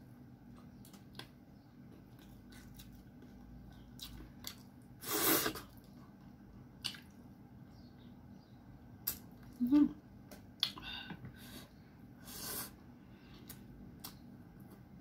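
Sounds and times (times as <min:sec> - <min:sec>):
faint chewing: 0:00.4 - 0:07.2.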